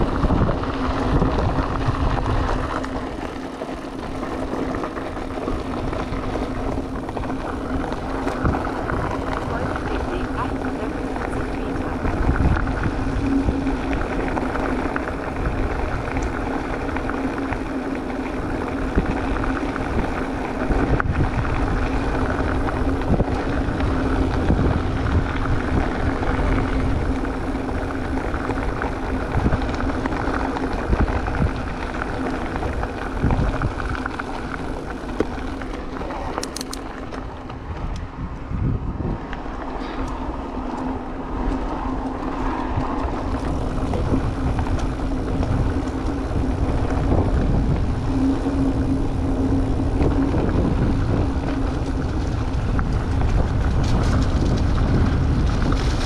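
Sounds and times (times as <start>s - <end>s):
electric bike motor hum: 0.0s - 56.0s
tyres rolling on trail: 0.0s - 56.0s
wind buffeting microphone: 0.0s - 56.0s
bike knocks and rattles: 48.8s - 56.0s.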